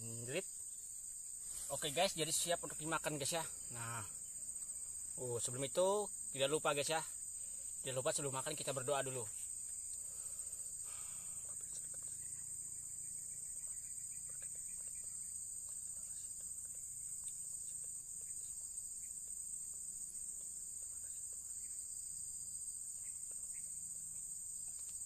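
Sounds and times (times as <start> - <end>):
high-pitched insect chorus: 0.0 - 25.0
faint clicks: 9.6 - 10.1, 24.6 - 25.0.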